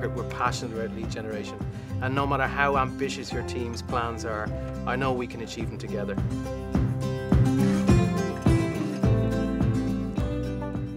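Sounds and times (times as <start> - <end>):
background music with steady beat: 0.0 - 10.9.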